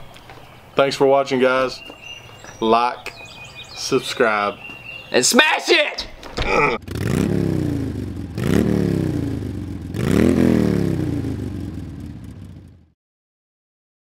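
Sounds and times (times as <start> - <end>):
motorcycle engine revving: 6.7 - 13.0.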